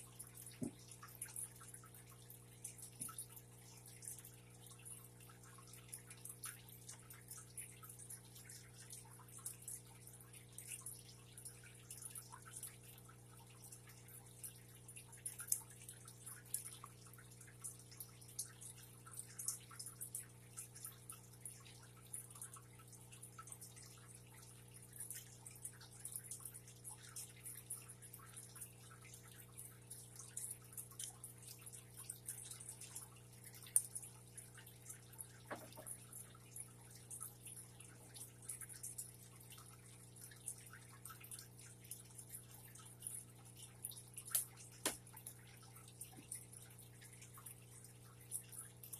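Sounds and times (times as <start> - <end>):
light crackling ticks: 30.2 - 34.0.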